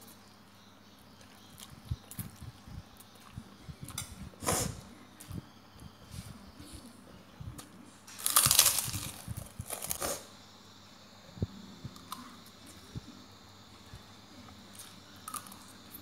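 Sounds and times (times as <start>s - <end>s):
crunching bites of snack: 8.1s - 10.2s.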